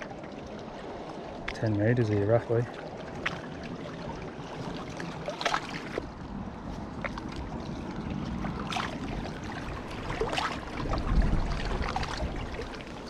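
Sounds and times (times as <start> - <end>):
water lapping on rocks: 0.0 - 13.0
wind buffeting microphone: 3.1 - 13.0.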